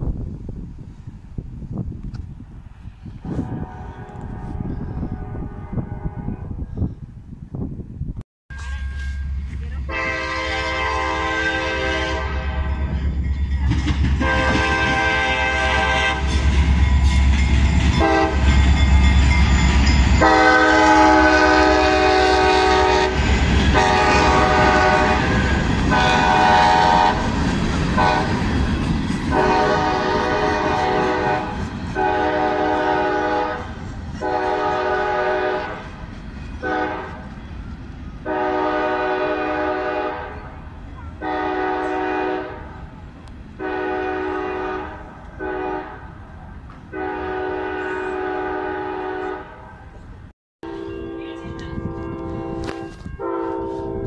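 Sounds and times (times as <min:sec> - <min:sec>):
freight train rumble: 0:00.0 - 0:54.0
train horn blasts: 0:03.2 - 0:06.7, 0:08.5 - 0:13.2, 0:14.2 - 0:27.3, 0:27.9 - 0:28.5, 0:29.3 - 0:35.9, 0:36.6 - 0:37.4, 0:38.2 - 0:40.6, 0:41.2 - 0:42.8, 0:43.6 - 0:46.2, 0:46.9 - 0:49.7, 0:50.6 - 0:54.0
train cars rolling past: 0:08.5 - 0:54.0.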